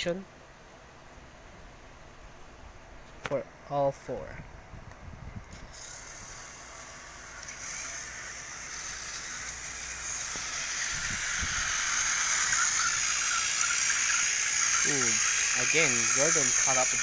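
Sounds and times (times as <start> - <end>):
toy train motor whirring: 5.6 - 17.0.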